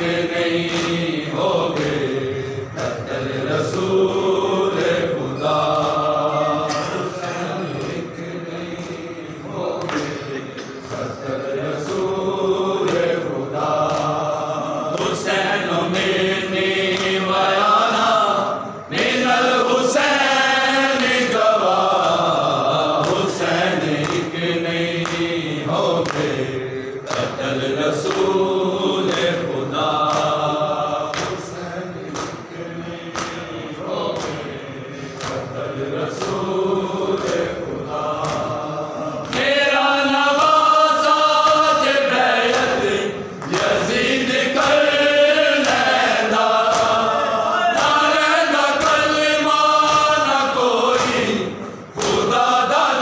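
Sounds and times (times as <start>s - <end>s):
men chanting: 0.0s - 53.0s
hands slapping chests: 0.6s - 2.1s, 13.8s - 14.3s, 30.1s - 30.5s, 32.1s - 32.4s, 33.1s - 33.5s, 34.1s - 34.5s, 35.2s - 35.5s, 38.2s - 38.6s, 45.6s - 47.1s, 49.8s - 51.4s.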